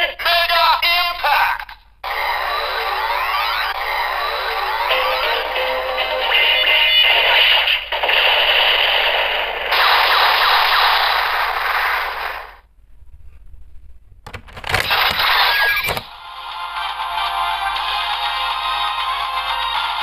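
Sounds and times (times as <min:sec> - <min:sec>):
toy belt electronic sound effects: 0:02.0 - 0:07.7, 0:14.8 - 0:16.1
plastic clicks: 0:14.2 - 0:15.1.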